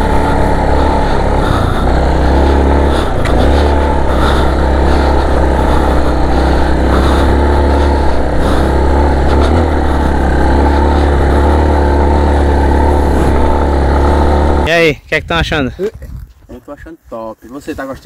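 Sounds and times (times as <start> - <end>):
motorcycle engine drone: 0.0 - 14.9
wind rumble on microphone: 14.9 - 16.9.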